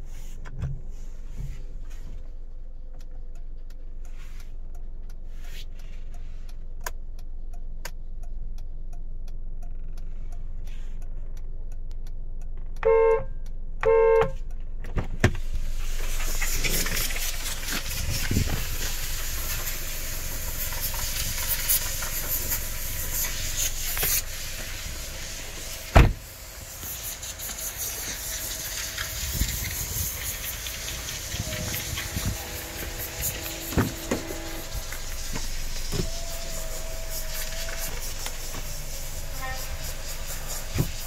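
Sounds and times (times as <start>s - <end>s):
car horn toot: 12.8s - 14.4s, 27.0s - 40.9s
outdoor hiss and handling: 14.8s - 41.0s
loud thump: 25.9s - 26.3s, 31.6s - 36.1s.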